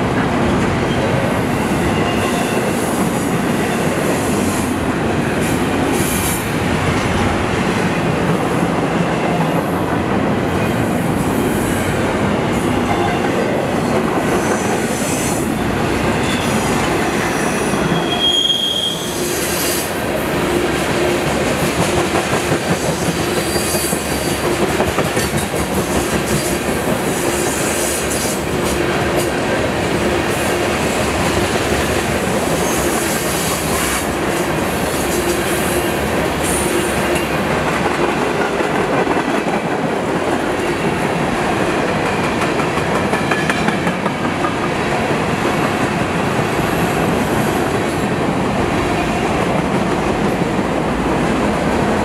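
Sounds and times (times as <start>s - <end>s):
high wheel squeal: 17.3s - 19.8s.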